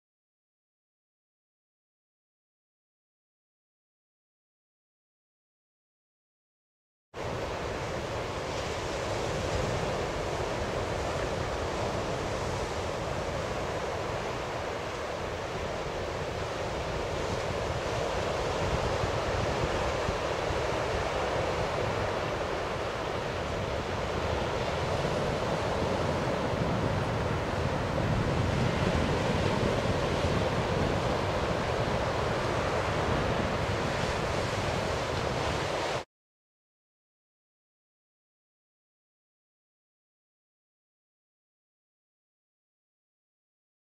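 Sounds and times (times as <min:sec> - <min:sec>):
surf washing onto beach: 0:07.2 - 0:36.0
wind buffeting microphone: 0:07.2 - 0:36.0.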